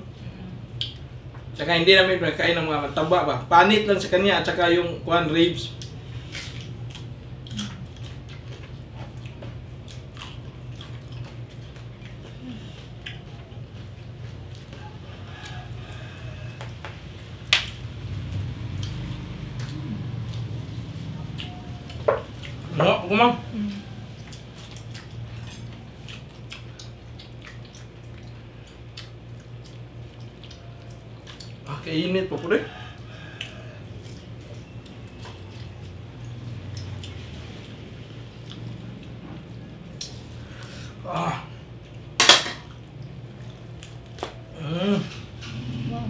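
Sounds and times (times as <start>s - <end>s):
low steady hum: 0.0s - 46.0s
wet chewing and biting: 5.7s - 22.8s, 23.8s - 31.8s, 33.3s - 40.3s, 42.7s - 44.5s.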